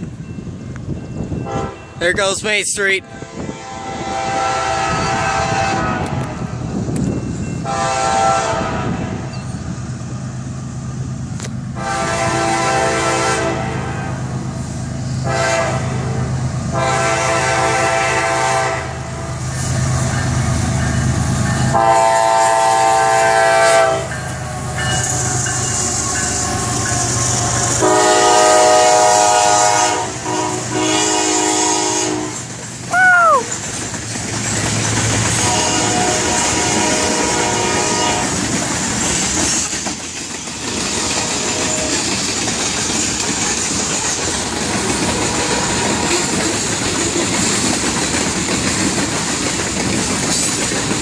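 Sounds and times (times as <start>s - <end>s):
train rolling noise: 0.0s - 51.0s
locomotive air horn blasts: 1.4s - 1.8s, 3.0s - 6.4s, 7.6s - 9.3s, 11.8s - 14.2s, 15.2s - 19.3s, 21.7s - 25.1s, 26.0s - 32.4s, 35.4s - 38.4s, 45.1s - 46.3s.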